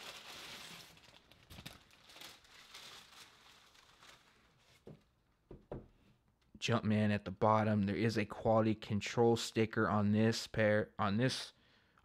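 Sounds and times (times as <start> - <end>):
tissue paper rustling: 0.0 - 5.0.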